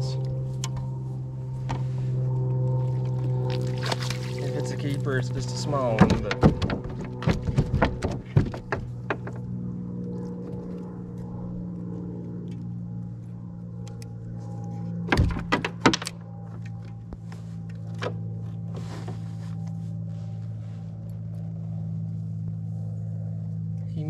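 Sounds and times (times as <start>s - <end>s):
low motor hum: 0.0s - 24.0s
sharp knocks and clatters: 5.9s - 9.4s.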